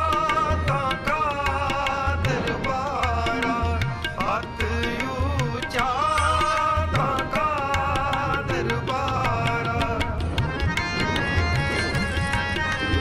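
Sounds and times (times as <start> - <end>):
tabla strokes: 0.0 - 13.0
sliding melody: 5.8 - 13.0.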